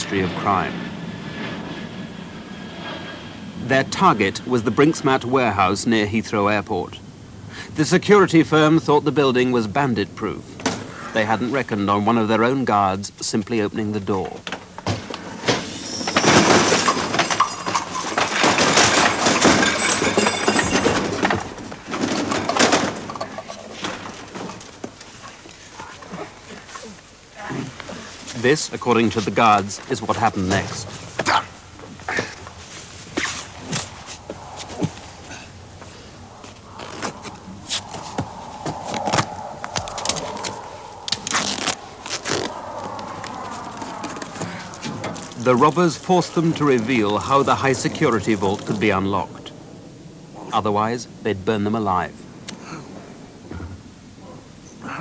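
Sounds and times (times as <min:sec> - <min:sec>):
faint steady hum: 0:00.0 - 0:55.0
scuffling and clattering: 0:14.4 - 0:29.9, 0:30.7 - 0:48.8.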